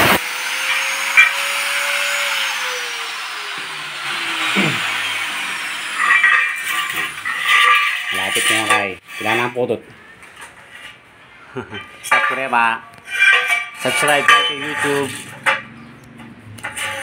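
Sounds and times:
angle grinder whining: 0.0s - 9.0s
metal tubes clattering on tile floor: 6.0s - 9.6s, 10.2s - 17.0s.

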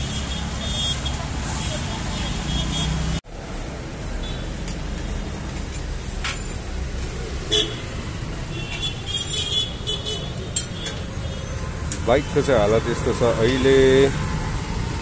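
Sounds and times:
vehicle horn toot: 0.0s - 3.0s, 7.5s - 7.8s
road traffic rumble: 0.0s - 15.0s.

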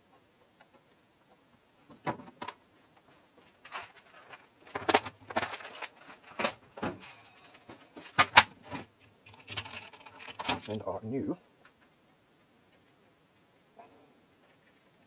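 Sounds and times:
small parts clattering on workbench: 3.6s - 10.8s.

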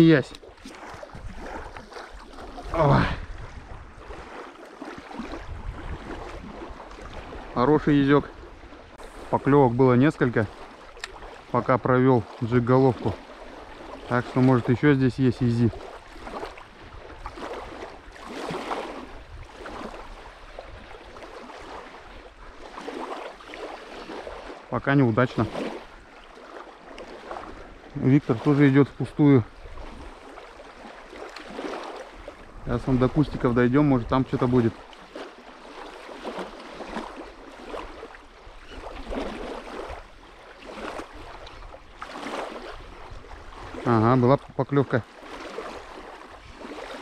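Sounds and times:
small waves lapping: 0.0s - 47.0s
wind rumble on microphone: 0.8s - 4.4s, 5.2s - 10.6s, 15.7s - 21.2s, 42.6s - 44.6s.

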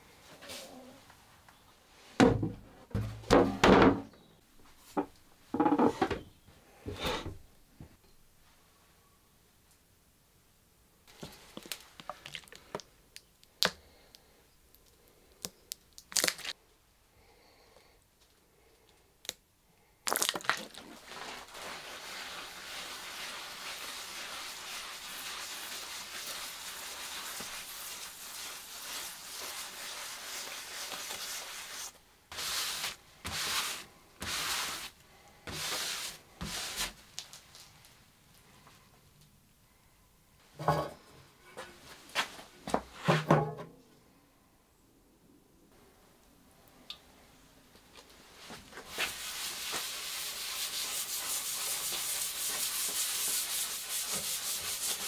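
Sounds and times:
scouring pad scrubbing wet wood: 20.9s - 36.9s, 48.8s - 55.0s
paper towel wiping: 20.9s - 37.0s, 48.4s - 55.0s.

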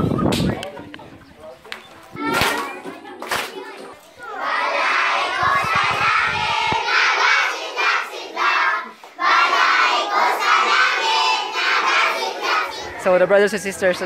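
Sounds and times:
children shouting: 2.2s - 13.0s
children singing: 2.2s - 13.0s.

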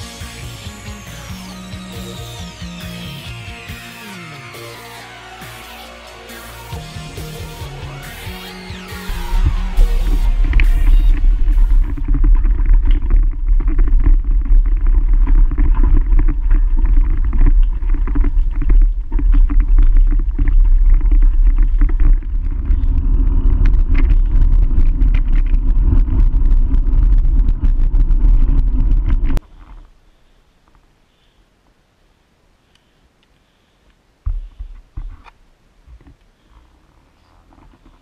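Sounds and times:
bicycle road rumble: 6.8s - 30.0s
bicycle rattles: 9.1s - 29.4s
wind buffeting microphone: 9.1s - 29.4s.

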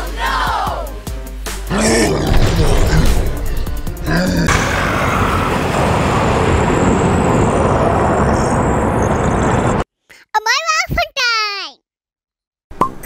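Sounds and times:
loud rushing noise: 2.1s - 9.8s.

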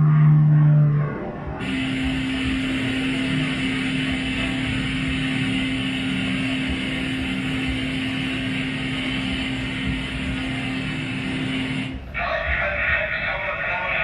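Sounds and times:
airplane engine and propeller drone: 0.0s - 14.0s
rushing air: 1.5s - 12.2s.

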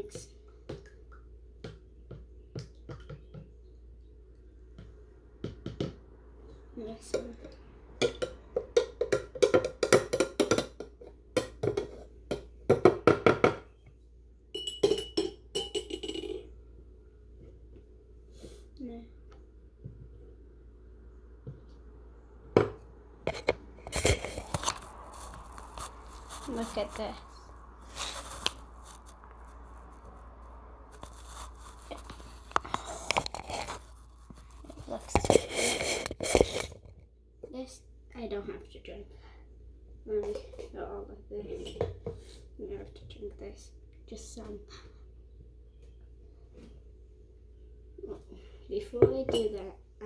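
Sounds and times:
metal spoon clinking in cup: 14.6s - 16.4s.

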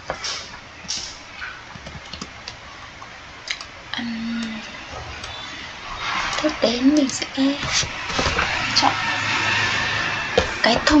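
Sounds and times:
low steady hum: 0.0s - 11.0s
keyboard and mouse clicks: 0.9s - 2.6s, 3.5s - 3.7s.

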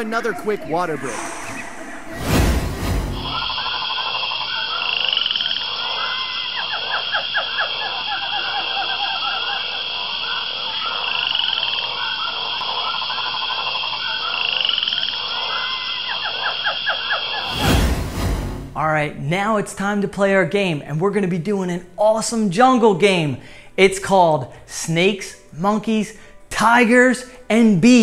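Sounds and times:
high-pitched drone: 0.0s - 3.7s
short rising whistle: 0.0s - 3.7s
frogs croaking in chorus: 3.7s - 17.4s.

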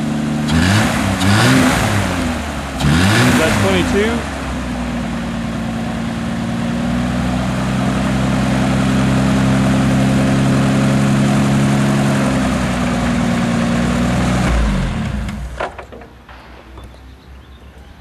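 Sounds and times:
aircraft engine droning: 0.0s - 15.6s
propeller noise: 0.0s - 18.0s.

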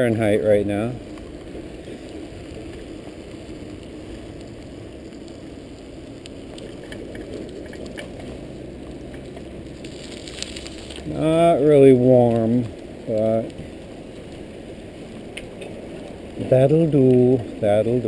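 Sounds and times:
tyres on wet pavement: 0.0s - 18.0s
light ticks: 15.3s - 16.2s.

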